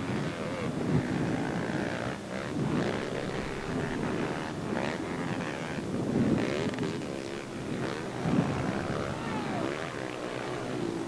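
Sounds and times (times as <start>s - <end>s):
dirt bike engines racing: 0.0s - 11.0s.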